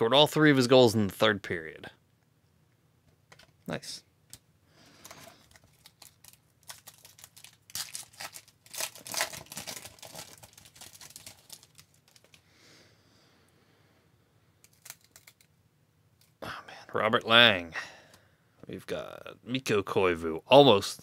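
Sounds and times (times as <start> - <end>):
wrapper tearing and crinkling: 5.0 - 12.4, 14.7 - 15.5.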